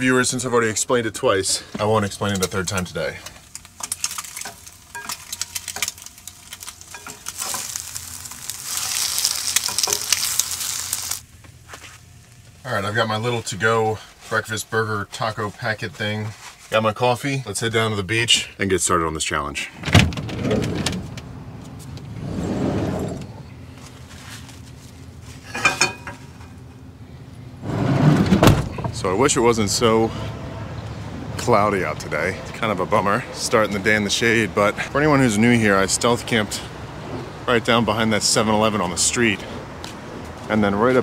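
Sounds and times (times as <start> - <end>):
meat sizzling: 3.4 - 11.3.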